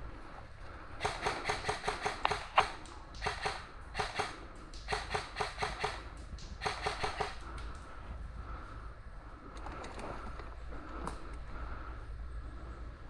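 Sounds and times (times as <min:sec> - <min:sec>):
airsoft rifle firing bursts: 0:01.0 - 0:07.4.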